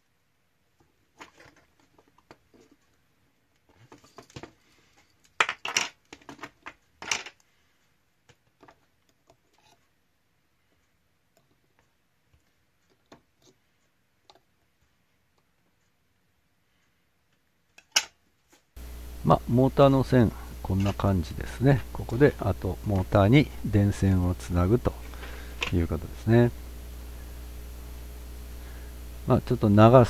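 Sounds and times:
small clicks and scrapes: 0.8 - 10.0, 10.7 - 15.9.

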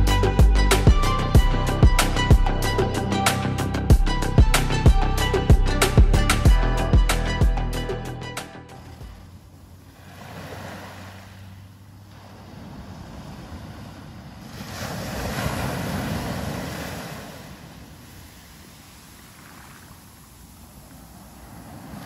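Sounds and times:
waves breaking on a sandy beach: 8.7 - 22.0.

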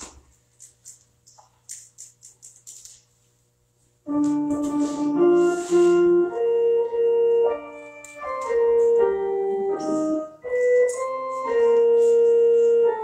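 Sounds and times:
church organ chords: 4.0 - 13.0.

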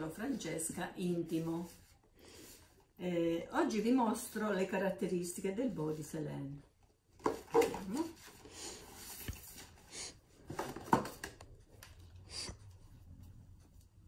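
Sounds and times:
cardboard and cloth rustling: 0.0 - 2.8, 7.0 - 12.0.

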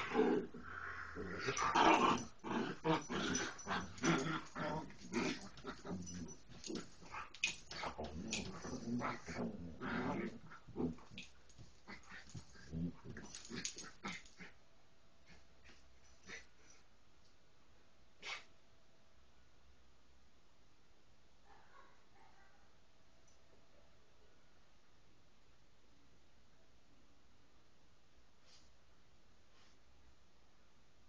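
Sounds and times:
dogs play growling: 0.0 - 14.6, 15.2 - 16.8.

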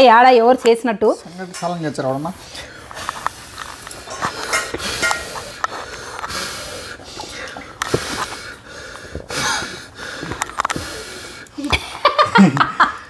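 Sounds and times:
people huffing breaths: 1.2 - 13.0
clicks of hands and dishes: 3.0 - 6.3.

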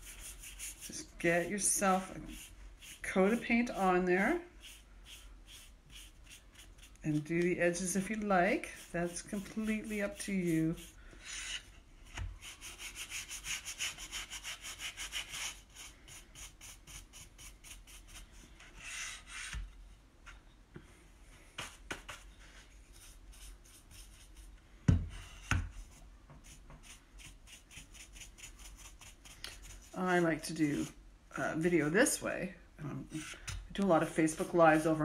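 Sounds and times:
paintbrush brushing on wood: 0.0 - 10.9, 34.0 - 35.0.

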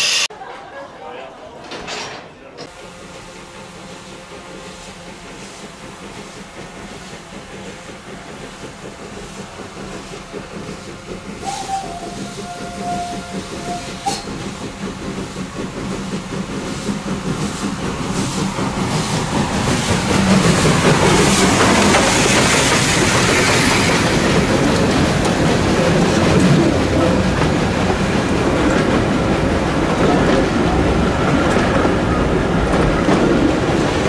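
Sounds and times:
steam locomotive passing: 0.0 - 0.3, 2.6 - 34.0
train whistle blast: 0.0 - 0.3, 11.4 - 14.3.

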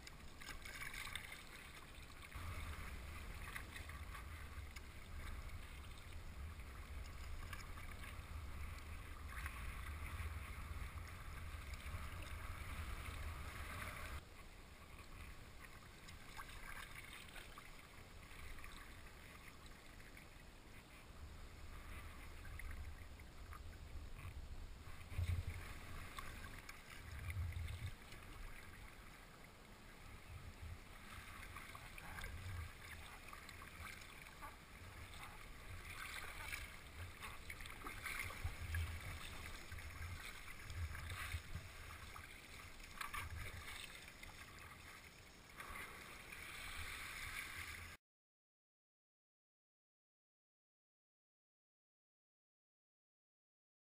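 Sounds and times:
water lapping against a boat hull: 0.0 - 48.0
wind rumbling on microphone: 2.4 - 14.2, 21.2 - 28.8.

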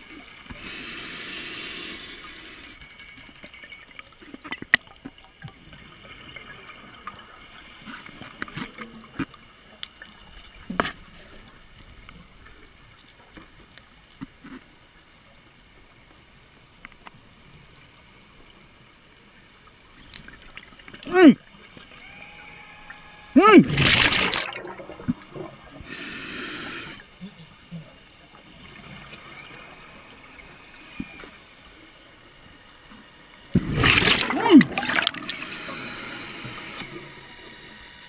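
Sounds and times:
underwater air bubbling: 0.0 - 2.8, 23.6 - 27.1, 33.6 - 36.9.

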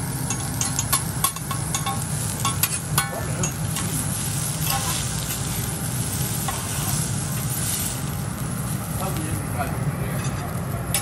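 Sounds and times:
seafood sizzling: 0.0 - 11.0
steady low hum: 0.0 - 11.0
spatula scraping on griddle: 0.3 - 8.2.

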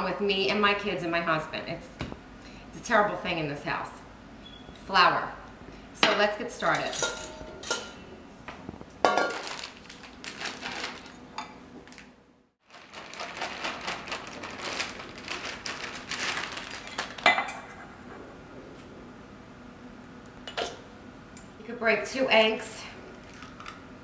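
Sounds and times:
objects clinking against metal bowl: 6.7 - 8.0
plastic bag rustling: 9.1 - 17.7.

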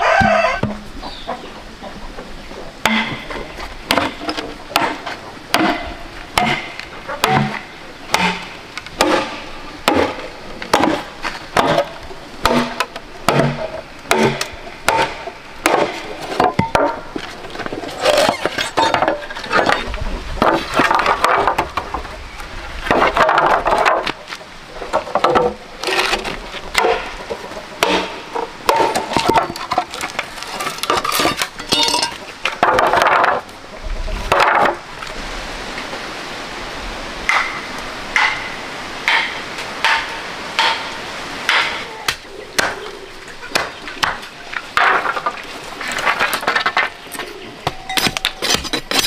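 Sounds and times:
bamboo pieces knocking and clattering: 2.8 - 33.6, 34.2 - 35.1, 39.1 - 49.0
blade chopping bamboo: 3.9 - 17.0, 27.8 - 31.5.

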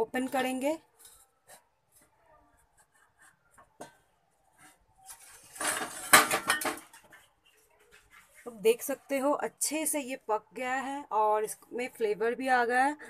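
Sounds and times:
metal bowl scraping and rattling: 5.0 - 9.0.

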